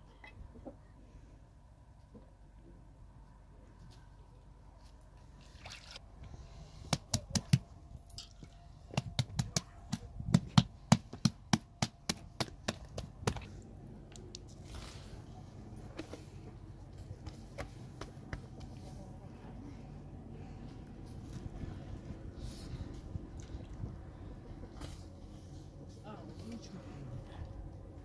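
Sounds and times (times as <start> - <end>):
hands slapping bread dough: 6.8 - 7.7, 8.9 - 13.5.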